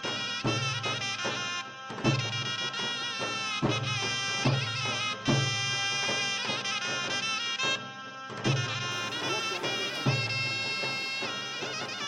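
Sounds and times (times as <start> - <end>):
wind instrument melody: 0.0 - 12.0
drum strokes: 8.5 - 12.0.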